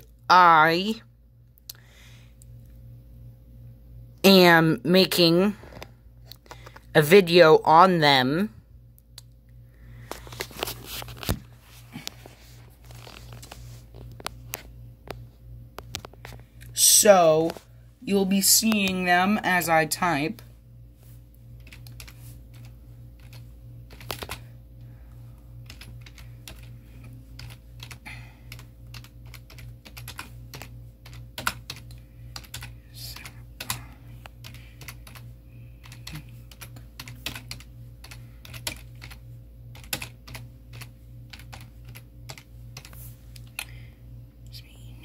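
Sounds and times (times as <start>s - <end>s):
steady low hum: 0.0s - 45.0s
keyboard typing clicks: 27.4s - 33.8s.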